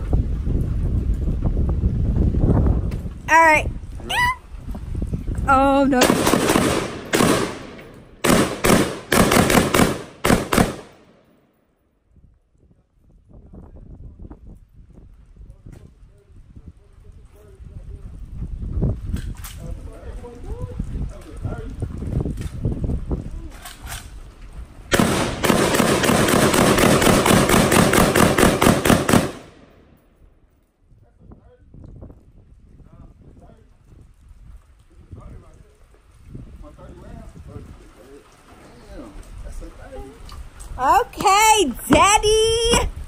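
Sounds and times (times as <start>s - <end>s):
rapid handgun shots: 6.0s - 11.3s, 24.9s - 29.9s.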